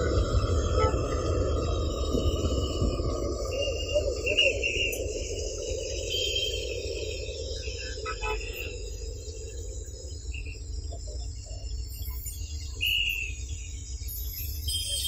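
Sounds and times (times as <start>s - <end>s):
low rumble: 0.0s - 11.5s
faint chirps: 0.0s - 15.0s.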